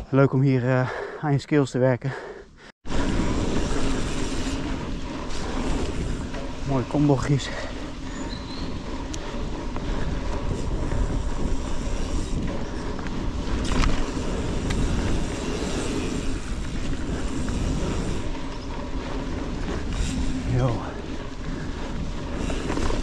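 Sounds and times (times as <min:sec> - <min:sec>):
bike rattling: 0:02.8 - 0:23.0
bike tyres and drivetrain rumble: 0:02.8 - 0:23.0
sharp clacks over bumps: 0:03.5 - 0:23.0.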